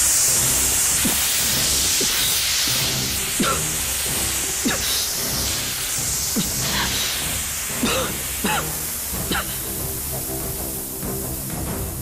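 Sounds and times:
dramatic background music: 0.0 - 12.0
gas spraying with loud hiss: 0.0 - 12.0.

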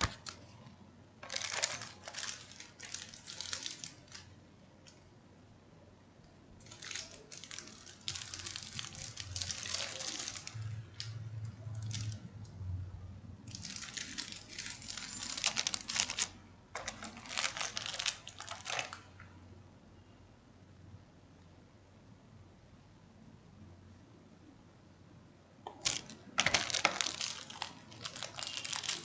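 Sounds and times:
plastic bags crinkling: 0.0 - 4.4, 6.6 - 12.3, 13.5 - 19.2, 25.7 - 29.0.

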